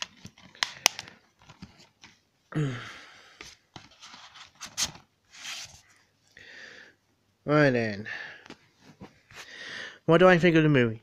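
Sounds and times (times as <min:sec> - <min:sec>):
cardboard sleeve scraping rustle: 0:03.8 - 0:06.1.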